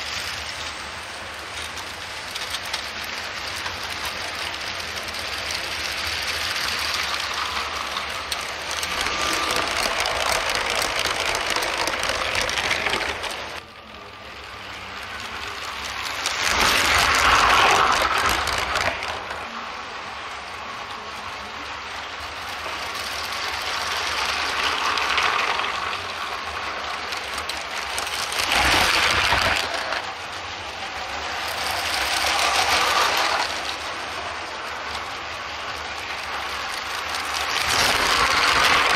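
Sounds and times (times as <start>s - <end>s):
toy trains rattling on track: 0.0s - 38.9s.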